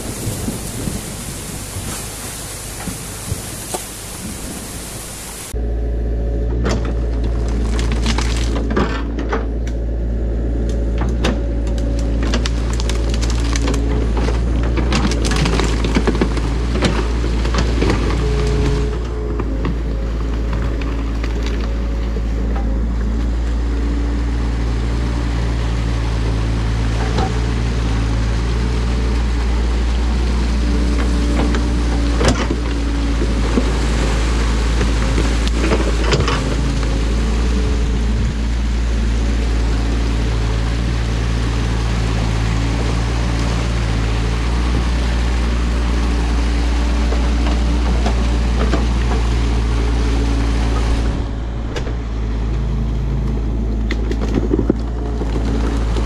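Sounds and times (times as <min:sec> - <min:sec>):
rushing water: 0:00.0 - 0:05.6, 0:06.5 - 0:56.0
excavator diesel engine: 0:00.0 - 0:56.0.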